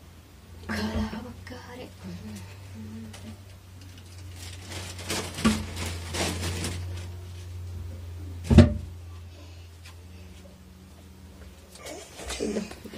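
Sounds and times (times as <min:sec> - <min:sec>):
steady low hum: 0:00.0 - 0:12.9
rustling and handling noises: 0:02.1 - 0:08.0
loud thump: 0:08.5 - 0:08.9.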